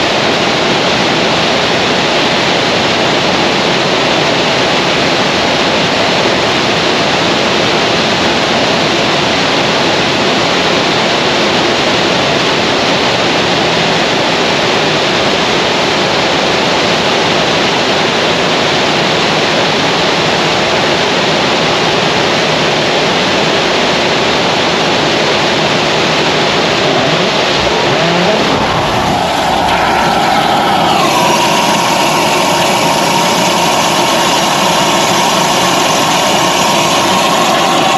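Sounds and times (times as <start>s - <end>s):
rocket engine firing: 25.1s - 37.9s.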